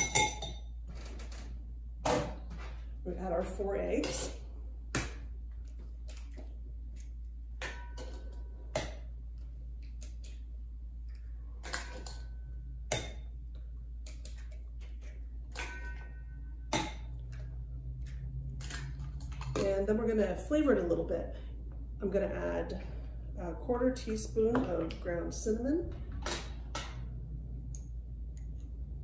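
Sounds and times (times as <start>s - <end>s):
bowl ringing tone: 15.6s - 17.1s.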